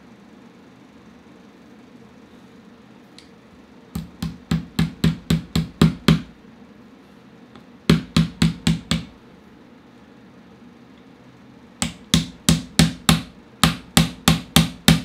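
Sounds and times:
small hammer tapping metal: 11.8s - 15.0s.

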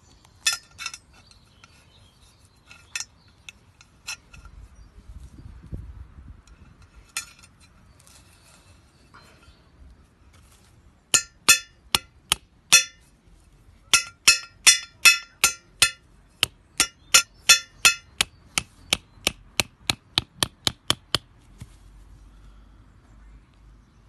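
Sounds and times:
mallet striking metal peg: 11.1s - 13.0s, 13.9s - 21.2s.

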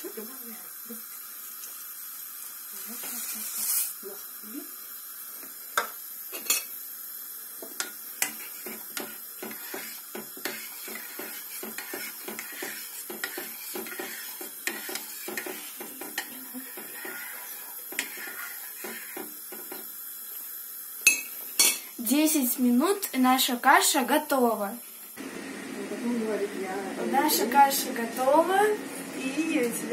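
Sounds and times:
metal spoon stirring in pot: 7.8s - 19.8s
spoon clinking on pot: 21.0s - 21.8s.

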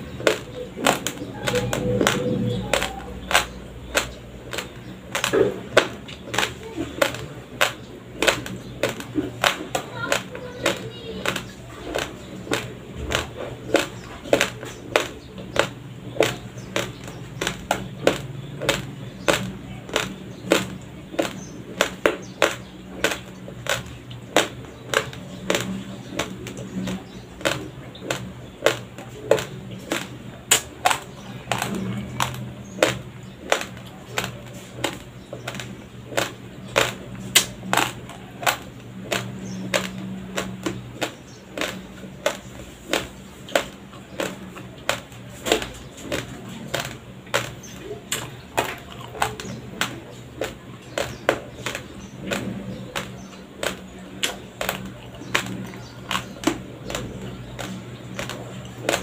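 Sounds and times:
chewing crunchy rice grains: 0.0s - 59.0s.

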